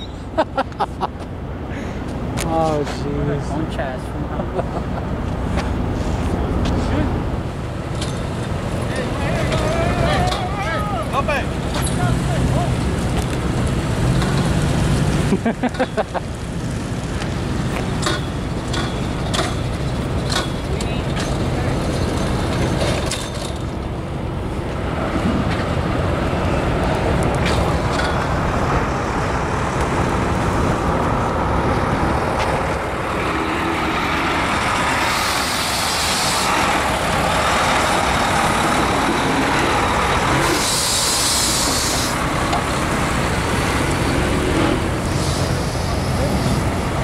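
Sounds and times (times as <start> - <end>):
diesel truck driving past: 0.0 - 47.0
air brakes hissing: 35.0 - 36.7, 40.4 - 42.2, 45.0 - 46.6.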